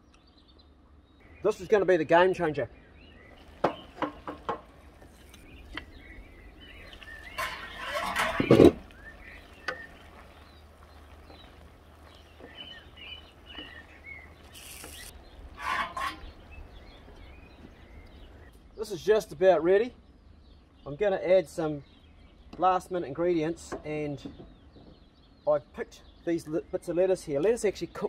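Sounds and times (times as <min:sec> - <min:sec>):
small birds chirping: 0:00.0 - 0:28.0
wooden spoon stirring in wok: 0:03.4 - 0:16.5
short sizzling hisses: 0:14.4 - 0:15.1.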